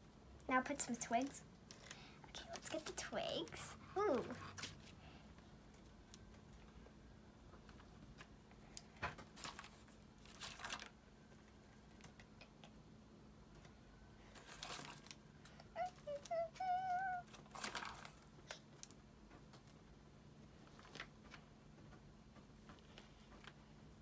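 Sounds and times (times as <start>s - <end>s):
twigs rustling and scraping: 14.3s - 15.2s
person humming: 15.7s - 17.3s.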